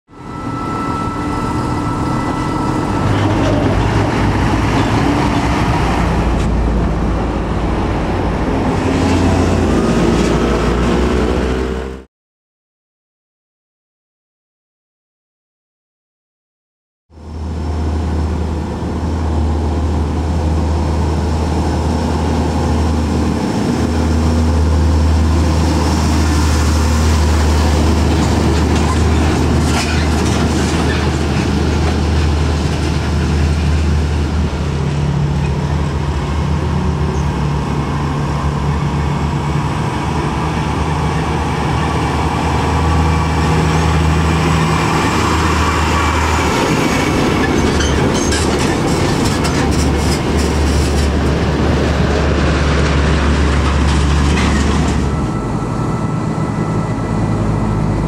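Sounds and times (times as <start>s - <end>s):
trucks engine drone: 0.1s - 12.1s, 17.1s - 58.0s
truck rattle: 43.4s - 55.3s.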